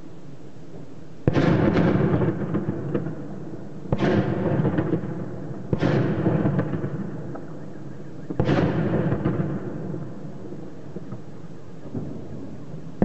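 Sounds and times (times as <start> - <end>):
heavy shelling explosions: 8.3 - 10.2.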